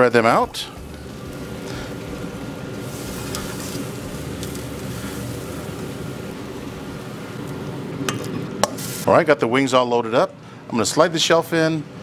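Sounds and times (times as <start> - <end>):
motor humming: 0.6 - 8.0.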